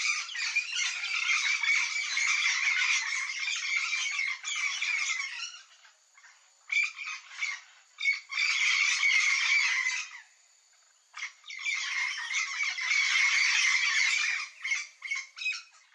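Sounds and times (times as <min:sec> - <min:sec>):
parrots squawking: 0:00.0 - 0:05.7, 0:11.2 - 0:15.8.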